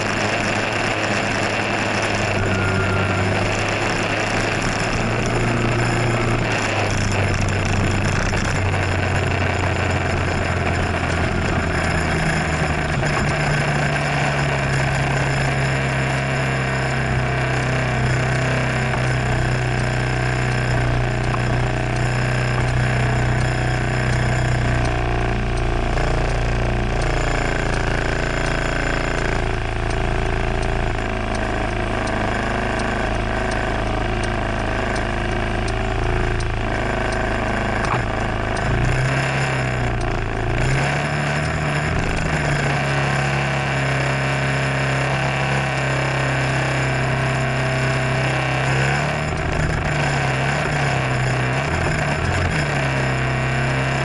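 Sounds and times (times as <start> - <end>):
scooter engine idling: 0.0 - 16.0, 16.7 - 39.0.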